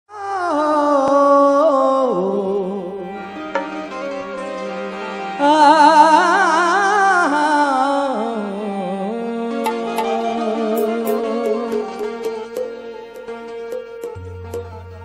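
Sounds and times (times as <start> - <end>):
harmonium playing: 1.8 - 15.0
man singing wordless notes: 5.0 - 15.0.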